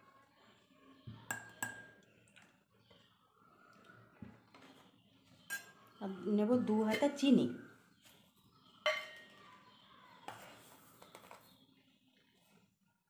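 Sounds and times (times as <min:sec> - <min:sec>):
ladle clinking against ceramic bowl: 0:01.3 - 0:02.0, 0:05.5 - 0:05.8, 0:08.9 - 0:09.3.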